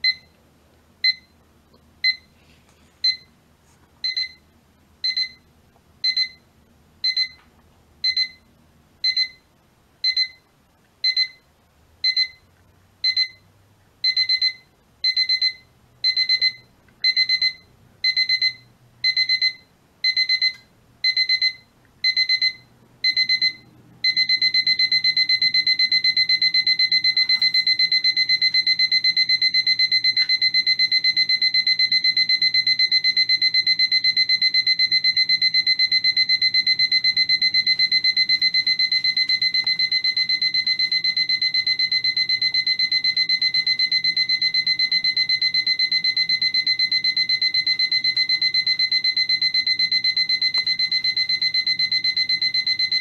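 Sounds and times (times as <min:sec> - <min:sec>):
alarm clock buzzer beeping: 0:05.0 - 0:05.4, 0:06.0 - 0:06.4, 0:07.0 - 0:07.4, 0:08.0 - 0:08.4, 0:12.0 - 0:12.4, 0:13.0 - 0:13.4, 0:14.0 - 0:53.0.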